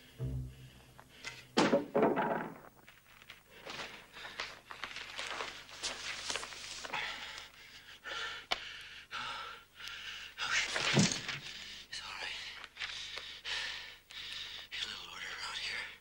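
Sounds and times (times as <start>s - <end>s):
man panting and gasping: 6.8s - 10.8s, 12.8s - 14.7s.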